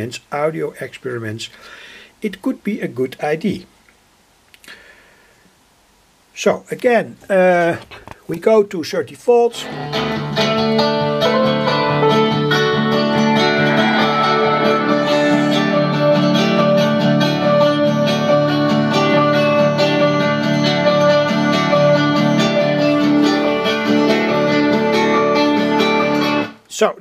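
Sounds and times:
guitar music from loudspeaker: 9.6s - 26.6s.

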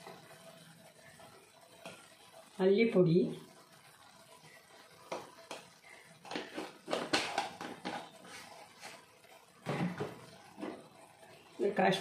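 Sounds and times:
kitchen utensils clicking and knocking: 6.2s - 8.1s.

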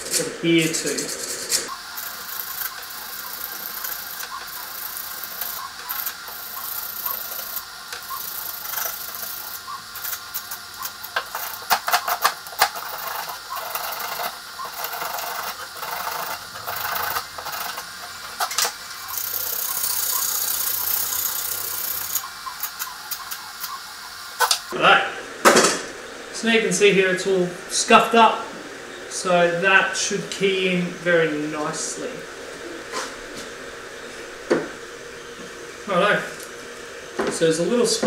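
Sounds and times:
printer motors whirring: 0.0s - 24.8s.

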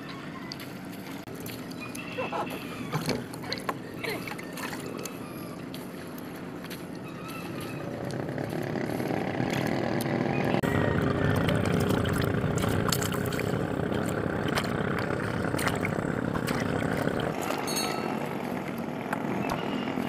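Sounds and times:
motorboat engine running: 0.0s - 20.0s.

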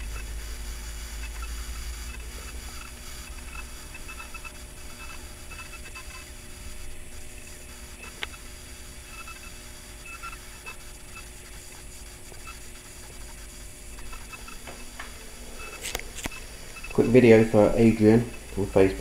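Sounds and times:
camera handling rustle: 15.8s - 16.4s.

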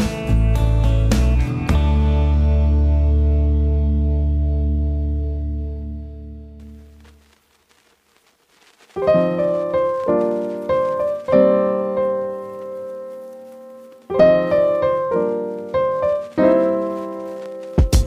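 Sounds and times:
piano chords ringing: 9.0s - 18.0s.

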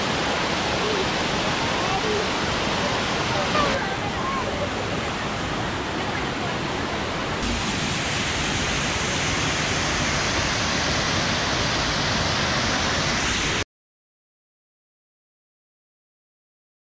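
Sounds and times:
water pouring over waterfall: 7.4s - 13.6s.

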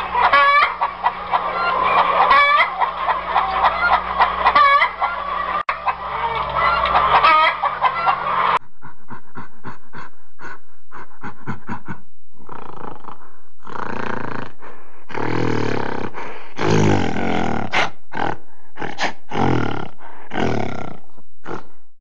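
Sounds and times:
gorilla pitched calls: 0.0s - 8.6s
gorilla grunts: 8.8s - 21.8s.

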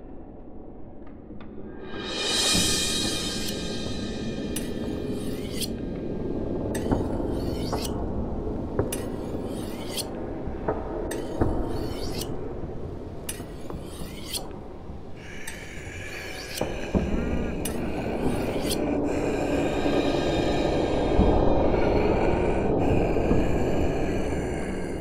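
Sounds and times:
cards sliding and scraping: 4.6s - 5.8s, 6.8s - 8.0s, 8.8s - 10.2s, 11.1s - 12.3s, 13.3s - 14.6s, 15.2s - 19.4s.

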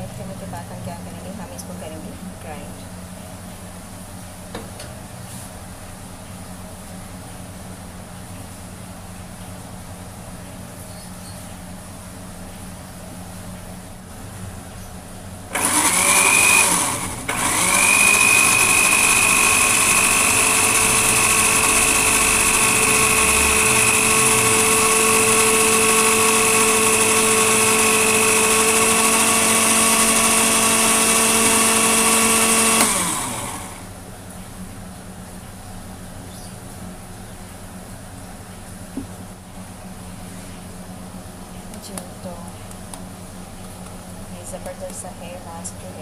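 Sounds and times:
blender motor whining: 15.5s - 33.9s.

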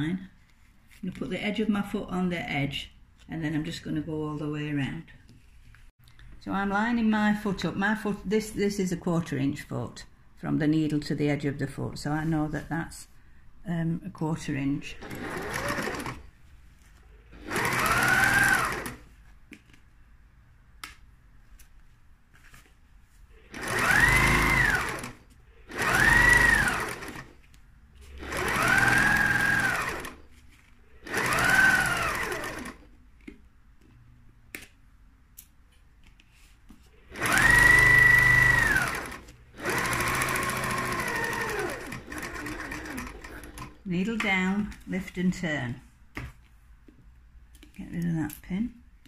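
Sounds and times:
sewing machine motor whine: 15.0s - 16.2s, 17.3s - 19.0s, 23.5s - 27.3s, 28.2s - 30.2s, 31.0s - 32.8s, 37.1s - 43.7s.

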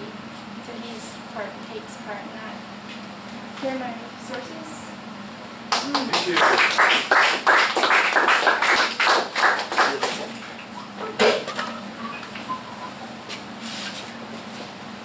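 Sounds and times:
audience applauding: 5.7s - 10.4s.

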